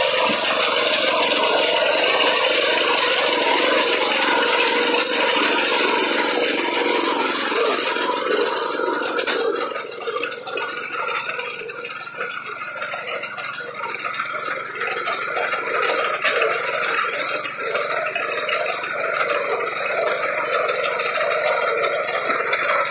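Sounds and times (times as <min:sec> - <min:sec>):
small engine running: 0:00.0 - 0:22.9.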